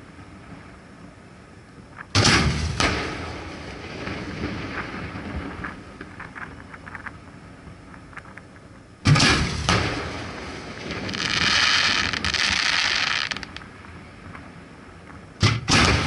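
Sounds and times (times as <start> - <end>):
firework bang: 2.2 - 5.2, 9.0 - 13.6, 15.4 - 16.0
firework crackles: 9.1 - 13.9
firework hiss: 10.7 - 13.6.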